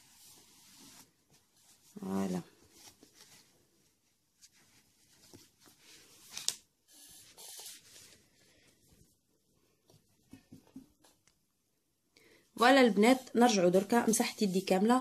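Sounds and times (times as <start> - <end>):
cloth rubbing hands: 0.0 - 9.1.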